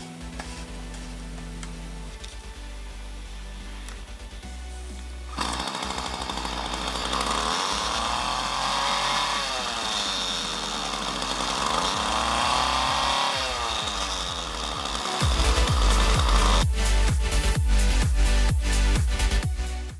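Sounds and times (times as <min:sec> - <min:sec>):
string trimmer engine revving: 0:05.3 - 0:17.1.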